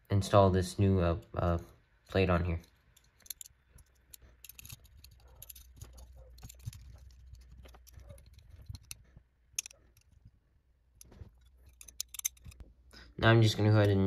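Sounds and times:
small metal parts clicking: 2.0s - 10.3s, 10.9s - 12.7s.

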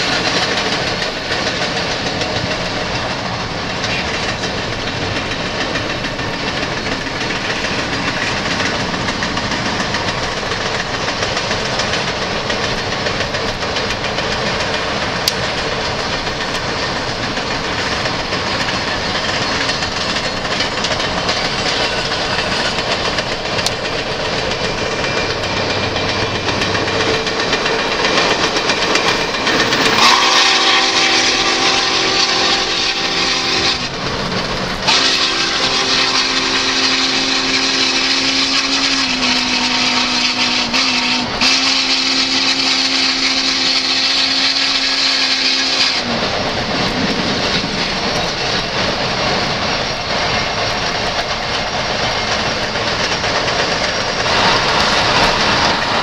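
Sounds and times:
train rushing at speed: 0.0s - 56.0s
steam whistle chord: 29.8s - 33.9s, 34.9s - 46.1s.

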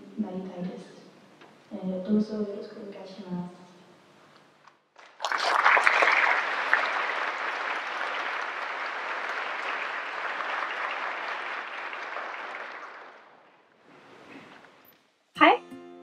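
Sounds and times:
audience applauding: 5.0s - 13.6s.

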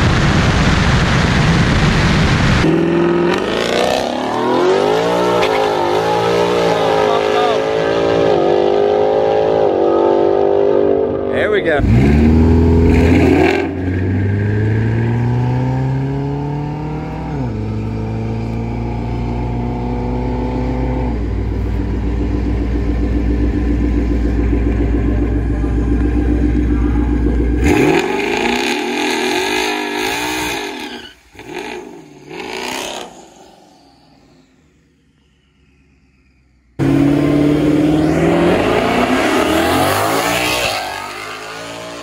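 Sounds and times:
car engine revving high: 2.6s - 36.1s, 36.8s - 42.0s
engine blips: 17.0s - 29.6s.

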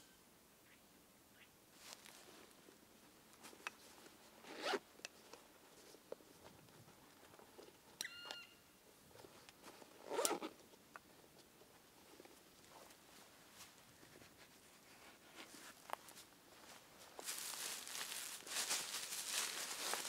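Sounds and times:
bag zipper rasping: 4.4s - 4.8s, 10.0s - 10.5s.

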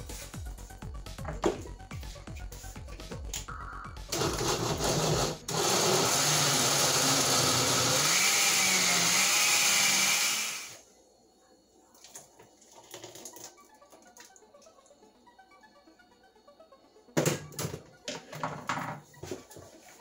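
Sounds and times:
blender motor running: 4.1s - 10.8s.

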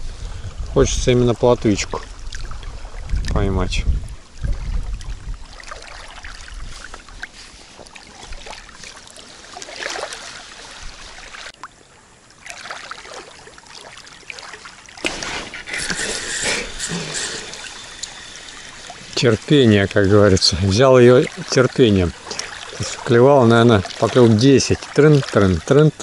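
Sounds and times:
wind rumbling on microphone: 0.0s - 8.8s, 10.4s - 11.5s
river water lapping: 0.0s - 26.0s.

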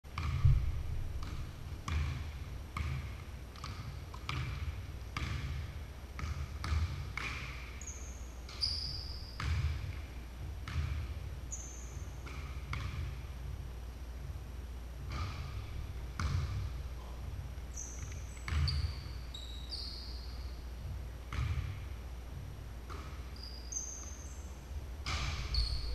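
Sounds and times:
basketball bouncing on hardwood floor: 0.2s - 7.6s, 9.4s - 11.2s, 12.2s - 13.2s, 15.1s - 16.7s, 18.0s - 19.0s, 21.3s - 21.8s
shoe squeaks on gym floor: 7.8s - 9.9s, 11.5s - 12.2s, 17.7s - 20.6s, 23.0s - 25.9s.

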